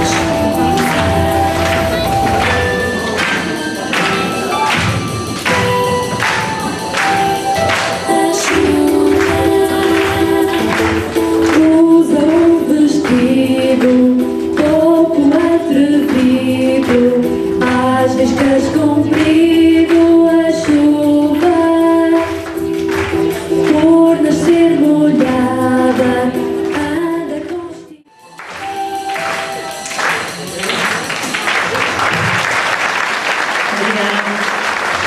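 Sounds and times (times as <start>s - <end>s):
woman singing into microphone: 0.0s - 3.3s, 8.0s - 28.1s
instrumental accompaniment: 0.0s - 32.5s.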